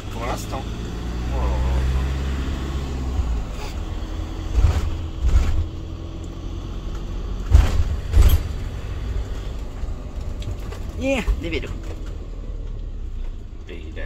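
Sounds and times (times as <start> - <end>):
van engine low rumble: 0.0 - 14.0
dull low thumps: 3.0 - 11.5.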